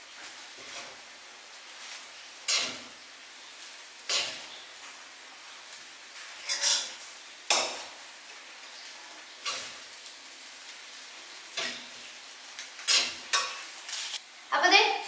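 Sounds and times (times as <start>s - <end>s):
faint steady sizzle: 0.0s - 15.0s
utensil scraping rice in pan: 0.2s - 5.0s, 5.7s - 7.6s, 9.4s - 14.2s.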